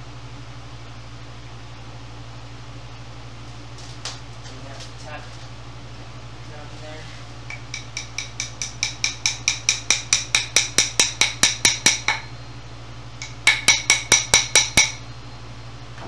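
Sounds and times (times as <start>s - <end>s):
hammer tapping wooden dowel: 7.5s - 12.3s, 13.2s - 15.0s.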